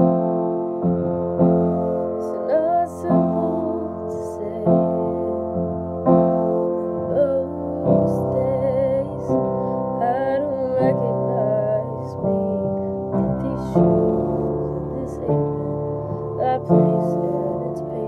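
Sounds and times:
piano chords: 0.0s - 18.0s
woman singing with vibrato: 2.2s - 5.8s, 6.8s - 18.0s.

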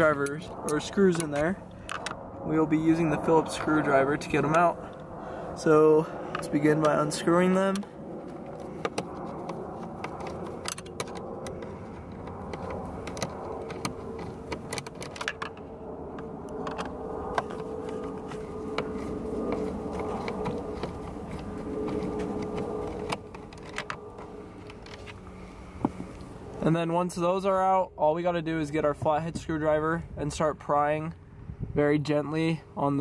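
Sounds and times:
steady low hum: 0.0s - 33.0s
screwdriver clicks and scrapes: 8.4s - 15.6s.

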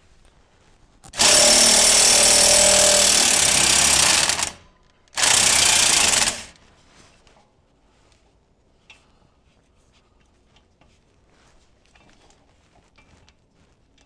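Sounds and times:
impact wrench hammering: 1.1s - 4.6s, 5.2s - 6.6s.

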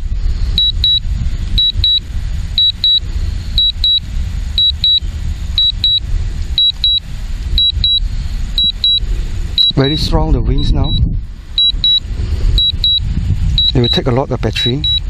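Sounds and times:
wind buffeting microphone: 0.0s - 15.0s
high double beep: 0.6s - 1.0s, 1.6s - 2.0s, 2.6s - 3.0s, 3.6s - 4.0s, 4.6s - 5.0s, 5.6s - 6.0s, 6.6s - 7.0s, 7.6s - 8.0s, 8.6s - 9.0s, 9.6s - 10.0s, 10.6s - 11.0s, 11.6s - 12.0s, 12.6s - 13.0s, 13.6s - 15.0s.

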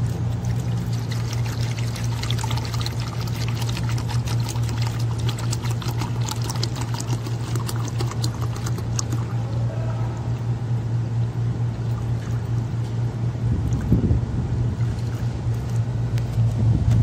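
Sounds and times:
water pouring and splashing: 0.0s - 9.4s
low hum: 0.0s - 17.0s.

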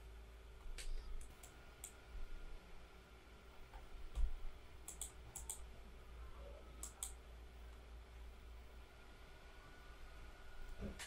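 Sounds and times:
computer mouse clicking: 0.6s - 2.0s, 3.7s - 5.7s, 6.8s - 7.2s.

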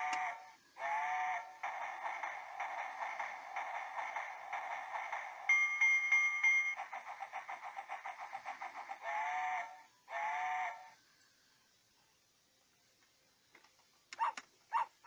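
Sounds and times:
electronic train chugging: 0.0s - 11.2s
toy bell ding: 5.5s - 6.8s.

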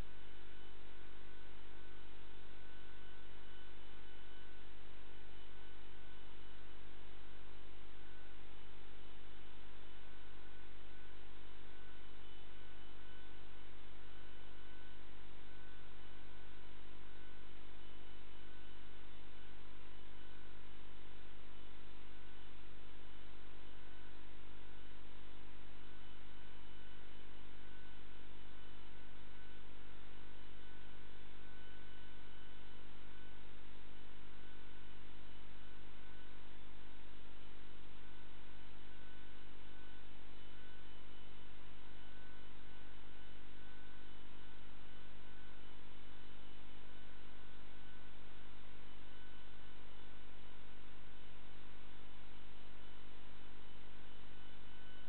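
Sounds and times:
electrical mains hum: 0.0s - 55.0s.

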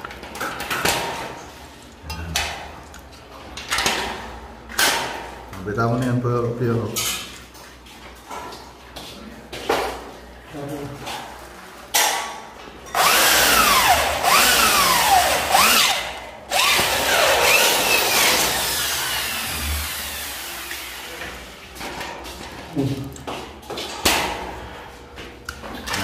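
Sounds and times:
electric drill boring through metal: 12.9s - 21.1s.

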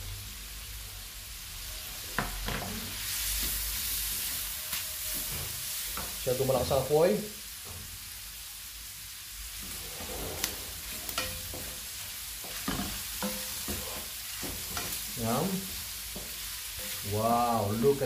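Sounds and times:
food sizzling in frying pan: 0.0s - 18.0s
wooden spatula scraping pan: 9.6s - 11.8s, 12.4s - 15.0s.

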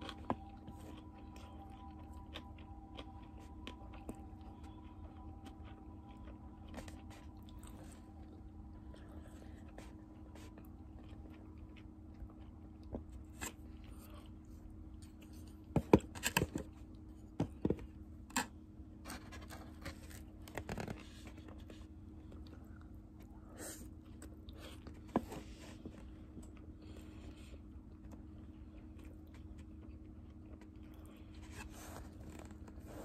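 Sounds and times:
chewing: 0.0s - 15.8s, 19.5s - 33.0s
faint low hum: 0.0s - 33.0s.

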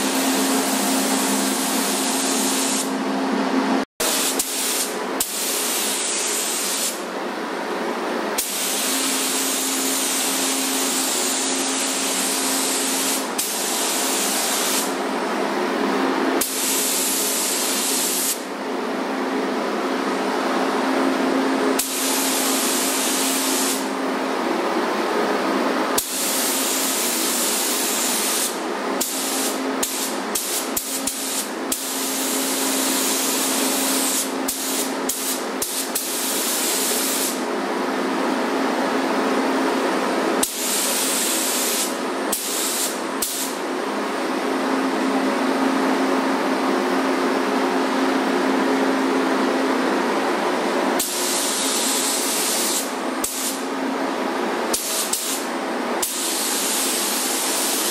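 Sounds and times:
paint spray gun hissing: 0.0s - 2.9s, 4.0s - 7.0s, 8.4s - 15.0s, 16.4s - 18.4s, 21.8s - 23.9s, 26.0s - 37.4s, 40.4s - 43.6s, 51.0s - 53.6s, 54.7s - 57.9s.

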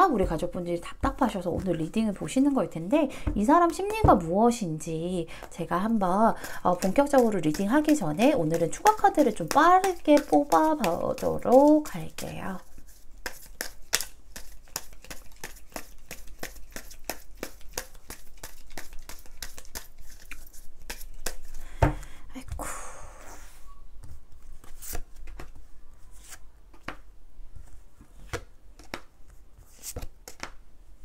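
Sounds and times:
cards clicking and flicking: 29.8s - 30.6s.

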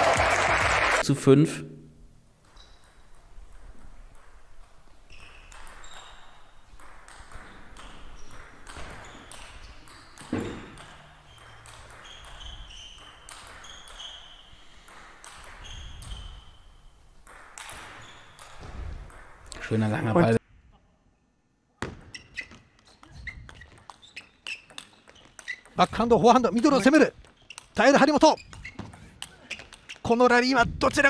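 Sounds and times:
shoes squeaking on floor: 2.5s - 3.0s, 5.0s - 6.8s, 7.4s - 17.0s, 17.6s - 19.1s, 21.8s - 30.2s.

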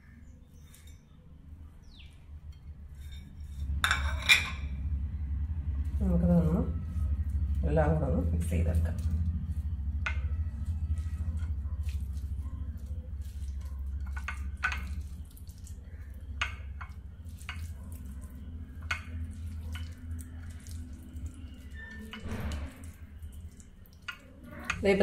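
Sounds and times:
steady low hum: 0.0s - 25.0s
hands squishing wet batter: 6.8s - 25.0s.

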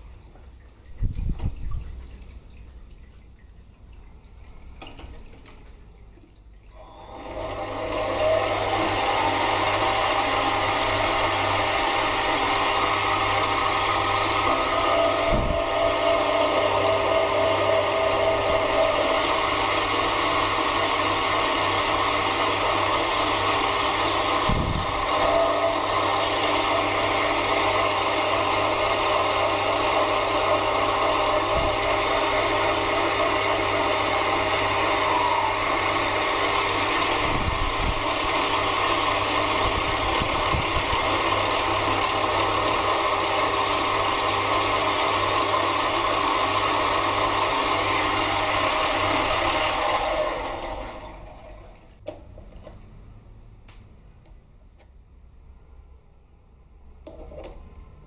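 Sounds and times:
lathe motor humming: 6.8s - 51.8s.

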